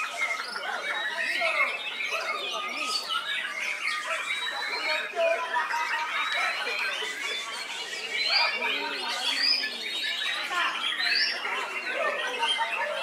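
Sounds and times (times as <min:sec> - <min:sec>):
murmur of crowd voices: 0:00.0 - 0:13.0
songbirds whistling and chattering: 0:00.0 - 0:13.0.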